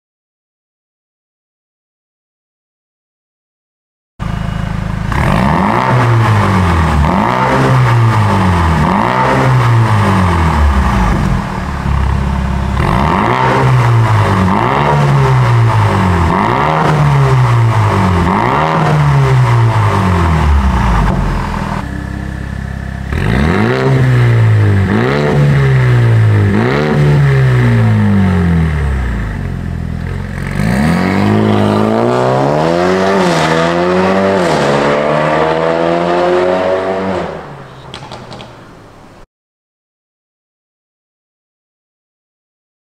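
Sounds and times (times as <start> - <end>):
car engine revving: 4.2 - 37.5.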